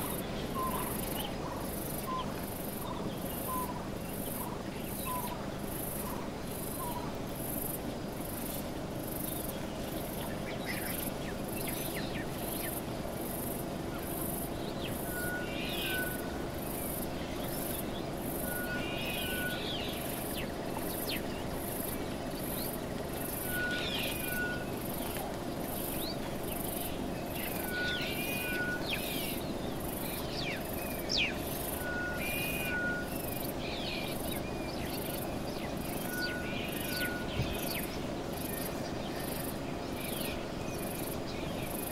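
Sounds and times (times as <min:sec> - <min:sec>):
bird calls: 0:00.0 - 0:07.2, 0:14.0 - 0:41.9
insects chirping: 0:00.0 - 0:41.9
bird two-note whistle: 0:18.4 - 0:19.7, 0:23.4 - 0:24.7, 0:27.6 - 0:29.1.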